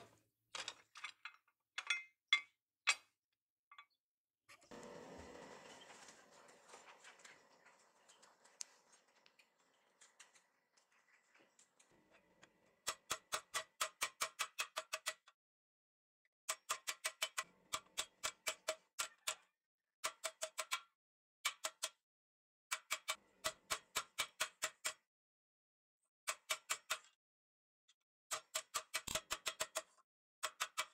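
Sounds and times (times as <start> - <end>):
forge fire hissing: 4.8 - 7.6.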